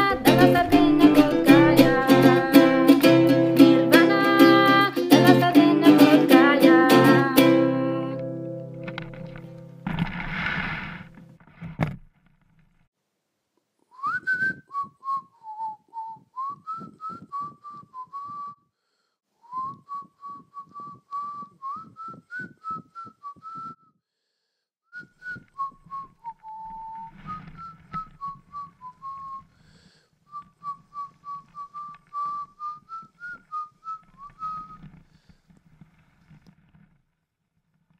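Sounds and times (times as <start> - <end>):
strummed guitar: 0.0 - 11.4
person whistling a melody: 13.9 - 18.6, 19.4 - 23.9, 24.9 - 29.5, 30.3 - 34.8.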